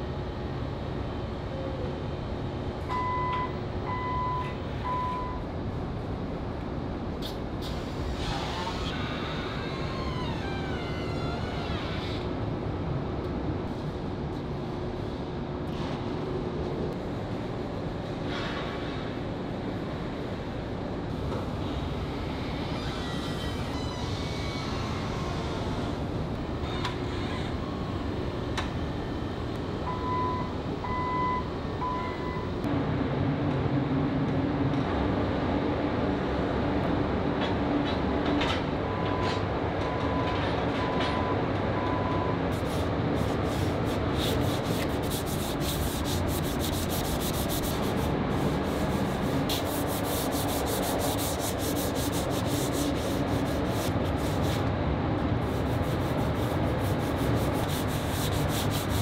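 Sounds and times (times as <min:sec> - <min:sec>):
factory machine hum: 0:00.0 - 0:59.0
hand rubbing steel panel: 0:43.5 - 0:54.6.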